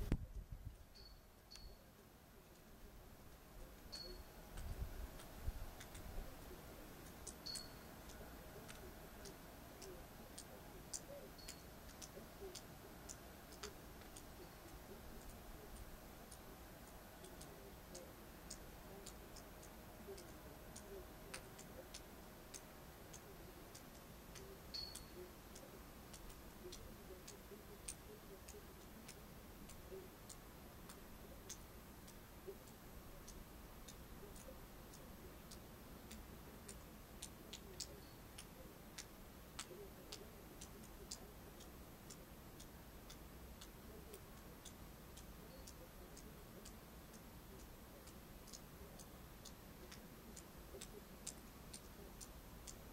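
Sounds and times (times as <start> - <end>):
faint high ticks: 0.0 - 1.8, 3.7 - 52.9.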